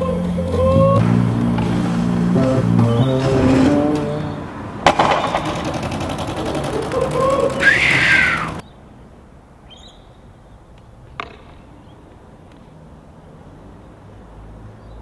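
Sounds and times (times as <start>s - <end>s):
low rumble: 0.0s - 4.5s
faint bird chirp: 9.6s - 10.7s.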